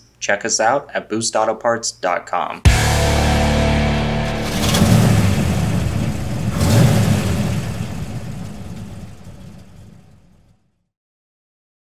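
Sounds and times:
whooshing swells: 0:02.7 - 0:10.2
deep rumble: 0:02.7 - 0:10.5.

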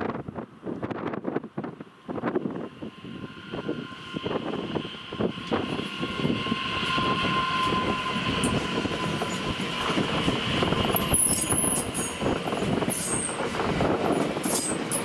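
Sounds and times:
steady high whine: 0:01.6 - 0:15.0
train wheels clattering on rails: 0:03.5 - 0:15.0.

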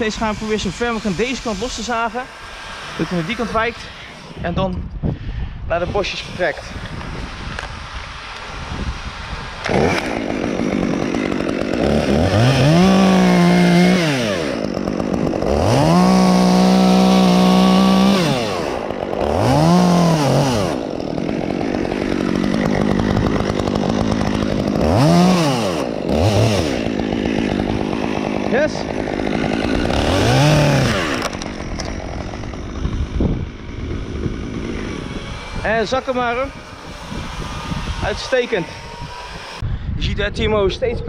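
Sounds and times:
chainsaw revving: 0:00.0 - 0:04.6, 0:05.7 - 0:39.6.

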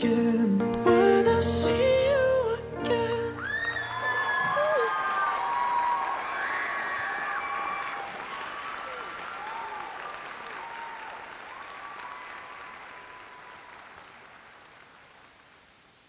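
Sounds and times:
people cheering: 0:03.4 - 0:14.7
audience applauding: 0:03.4 - 0:15.6.

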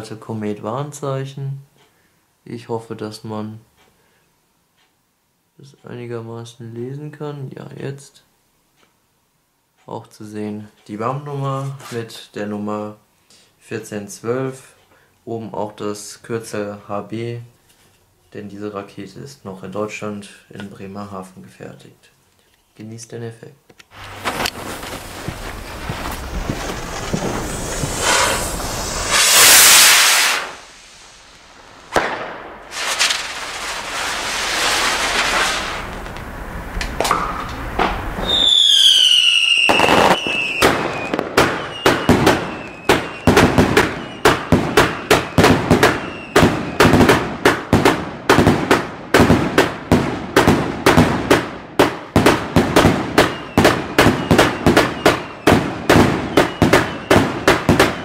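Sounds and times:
firework rocket hissing: 0:23.9 - 0:47.0
firework bangs: 0:23.9 - 0:58.0
falling firework whistle: 0:24.0 - 0:47.1, 0:52.7 - 0:58.0.

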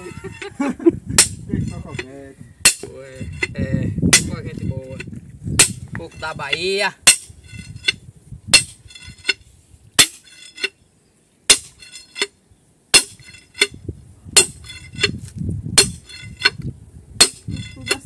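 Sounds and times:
sledgehammer ringing on steel bar: 0:05.6 - 0:09.4, 0:11.5 - 0:12.3, 0:13.0 - 0:13.8, 0:14.4 - 0:15.1, 0:15.8 - 0:16.6, 0:17.2 - 0:18.0.

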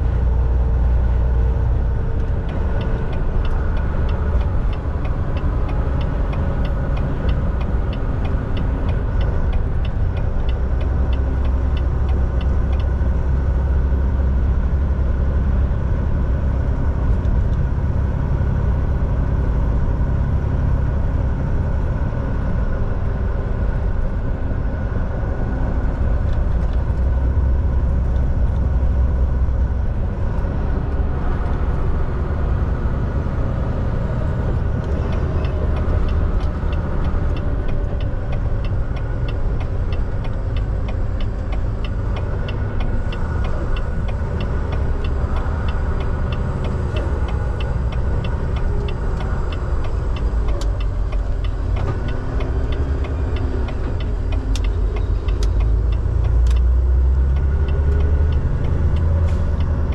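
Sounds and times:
road rumble: 0:00.0 - 0:59.9
truck engine drone: 0:00.0 - 0:59.9
light rhythmic ticking: 0:01.9 - 0:14.2, 0:34.4 - 0:59.9.

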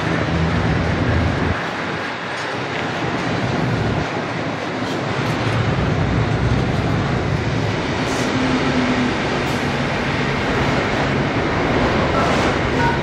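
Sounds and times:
freight train wheels on rails: 0:00.0 - 0:13.0.

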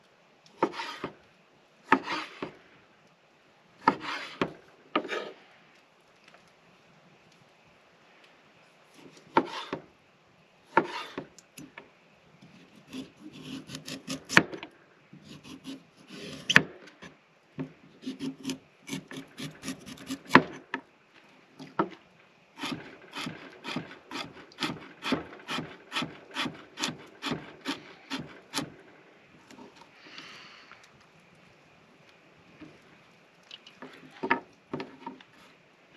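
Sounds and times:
knife scraping carrot: 0:12.7 - 0:14.4, 0:15.2 - 0:16.6, 0:18.0 - 0:20.6, 0:22.6 - 0:28.7.

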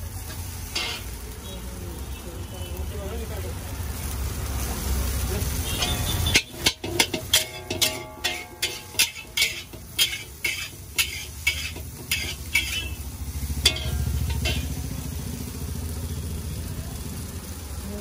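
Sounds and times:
metal spatula clanging on wok: 0:00.6 - 0:01.3, 0:05.8 - 0:15.1.

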